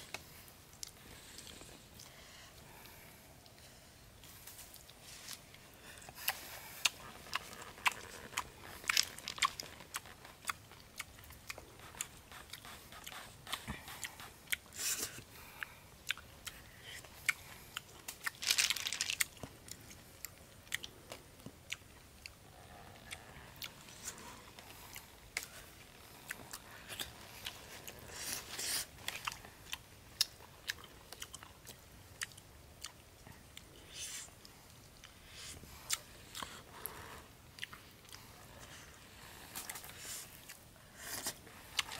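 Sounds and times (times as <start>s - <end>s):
snail shells clicking and crunching: 6.9s - 10.7s, 16.9s - 20.0s
leaves rustling: 18.3s - 19.4s.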